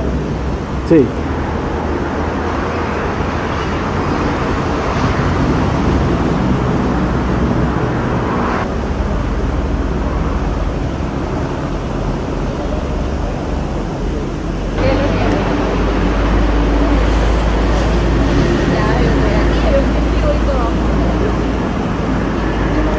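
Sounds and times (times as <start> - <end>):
outdoor rumble and hiss: 0.0 - 22.9.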